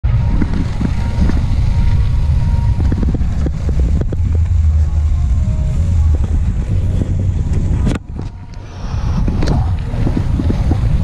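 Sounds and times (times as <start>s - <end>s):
wind rumbling on microphone: 0.0s - 11.0s.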